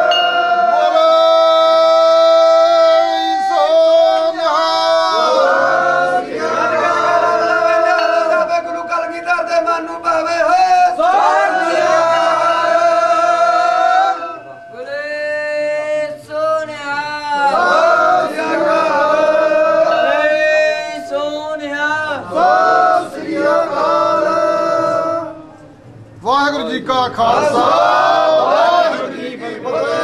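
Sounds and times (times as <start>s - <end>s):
men singing a hymn together: 0.0s - 8.5s, 10.5s - 25.3s.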